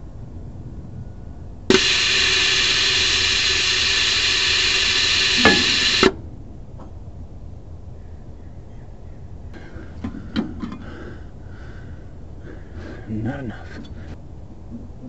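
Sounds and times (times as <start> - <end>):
faint steady tone: 1.0 - 6.1
click: 1.7 - 6.2
compressed air hissing: 1.7 - 6.2.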